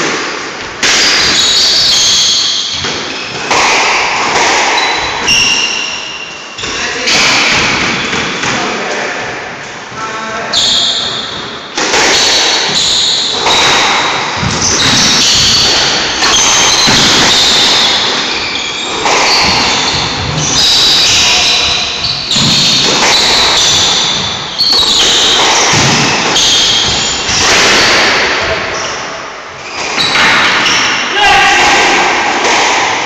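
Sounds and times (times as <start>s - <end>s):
squash ball hitting rackets and walls: 0.0s - 9.2s, 10.6s - 33.0s
shoes squeaking on wooden floor: 4.4s - 8.4s, 10.0s - 30.9s.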